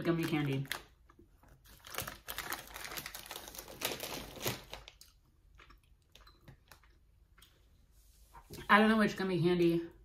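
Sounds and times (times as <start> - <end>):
chewing gummy candy: 0.6 - 7.1.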